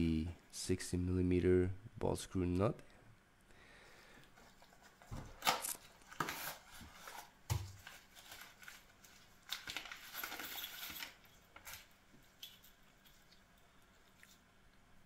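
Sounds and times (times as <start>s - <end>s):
paper rustling and crinkling: 4.4s - 11.9s.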